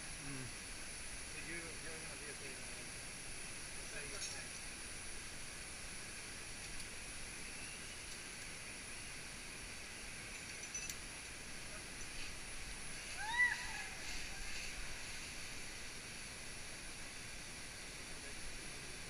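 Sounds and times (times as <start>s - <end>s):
high-pitched hiss: 0.0s - 19.0s
rising-and-falling call: 13.0s - 15.2s.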